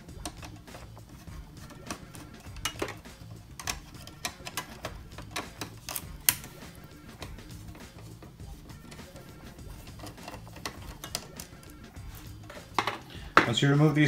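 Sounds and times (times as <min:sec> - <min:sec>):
screwdriver clicking on screws: 0:00.1 - 0:09.2, 0:09.8 - 0:11.8.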